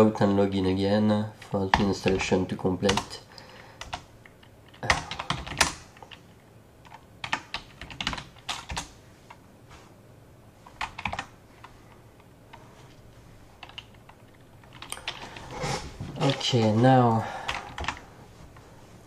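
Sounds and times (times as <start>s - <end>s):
keyboard typing: 3.8s - 9.4s, 10.7s - 12.6s, 13.6s - 15.5s, 17.4s - 18.0s.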